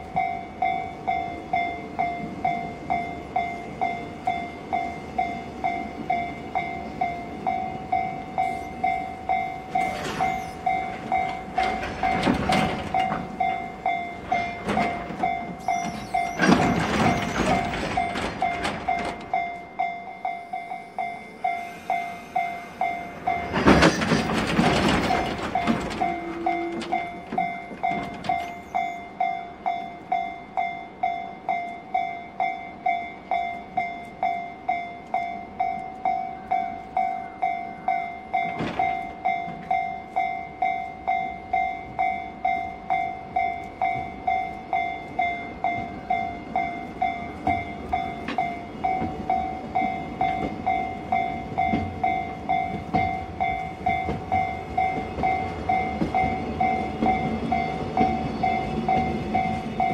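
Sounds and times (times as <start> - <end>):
freight train wheels clattering: 0.0 - 30.7, 37.8 - 59.9
level crossing bell ringing: 25.1 - 59.9.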